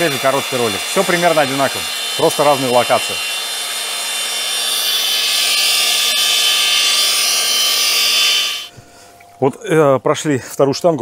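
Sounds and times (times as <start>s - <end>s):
electric drill motor running: 0.0s - 8.7s.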